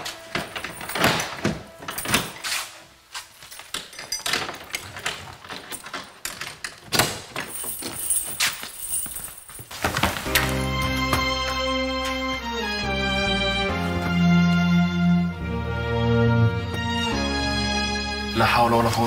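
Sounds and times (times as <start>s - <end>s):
knocks and clatter of movement: 3.3s - 10.6s.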